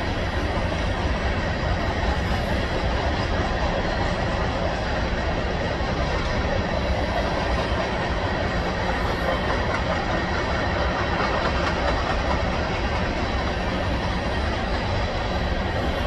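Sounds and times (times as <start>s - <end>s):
train wheels on rails: 0.0s - 16.0s.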